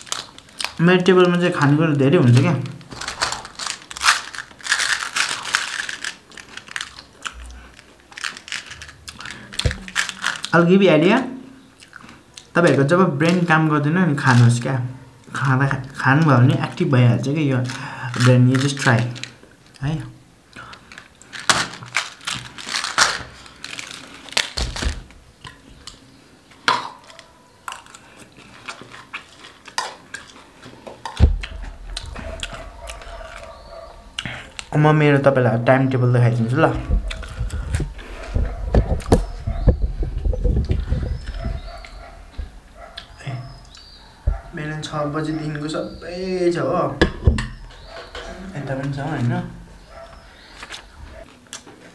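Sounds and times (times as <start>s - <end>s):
plastic packaging crackling: 0.0s - 10.7s, 17.6s - 19.8s, 20.6s - 26.0s, 26.6s - 44.8s, 47.5s - 51.6s.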